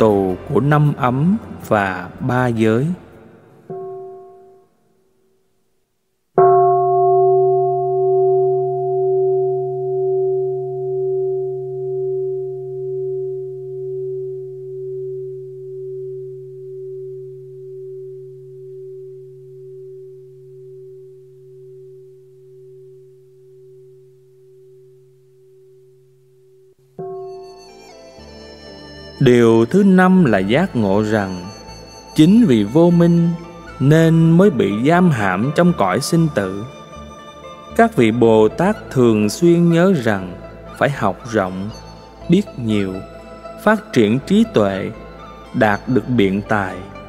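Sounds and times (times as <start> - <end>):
bowl bell ringing: 3.7 - 4.8, 6.4 - 25.9, 27.0 - 37.7.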